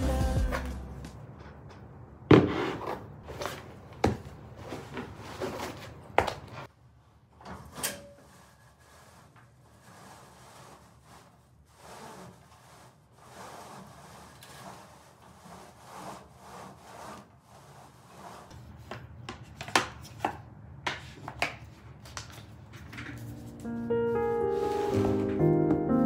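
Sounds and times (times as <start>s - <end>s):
background music: 0.0s - 1.2s, 23.2s - 26.0s
objects rubbing and rustling: 7.5s - 20.3s, 21.0s - 25.4s.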